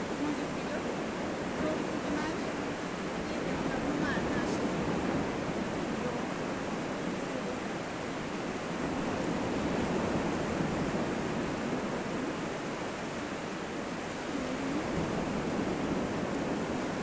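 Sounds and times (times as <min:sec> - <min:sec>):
sea surf breaking on beach: 0:00.0 - 0:17.0.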